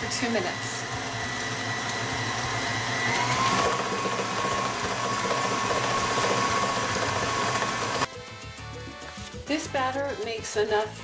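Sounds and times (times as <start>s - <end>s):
stand mixer beating batter: 0.0s - 8.1s.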